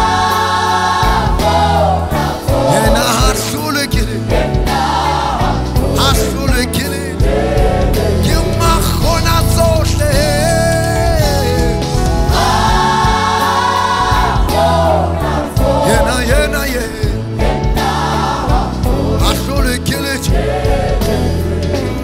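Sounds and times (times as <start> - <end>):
band of drums bass and keyboards: 0.0 - 22.0
choir singing gospel: 0.0 - 22.0.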